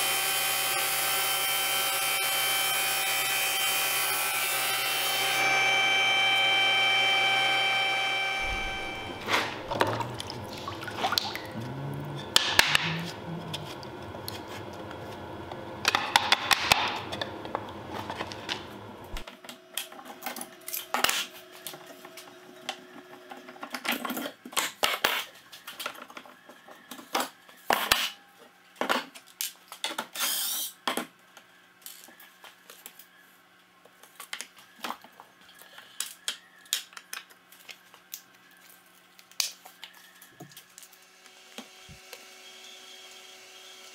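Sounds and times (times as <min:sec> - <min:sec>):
brief high squeak: 0:08.3 - 0:09.6
water sloshing in a tub: 0:09.3 - 0:12.2
clamps and wood clicking and knocking: 0:15.8 - 0:21.2.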